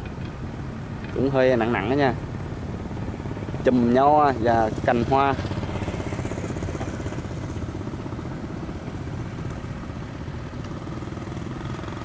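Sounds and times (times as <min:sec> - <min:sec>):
barge engine chugging: 0:00.0 - 0:12.0.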